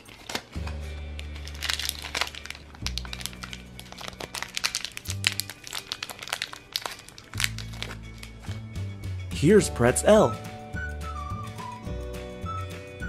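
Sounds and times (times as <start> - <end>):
plastic wrapper crinkling: 0.0 - 8.6
background music with low bass: 0.4 - 13.0.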